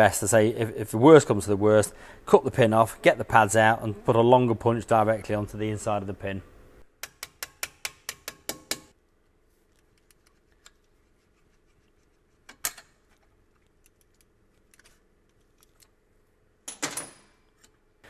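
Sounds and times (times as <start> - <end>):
hammer tapping metal punch: 7.0 - 8.9.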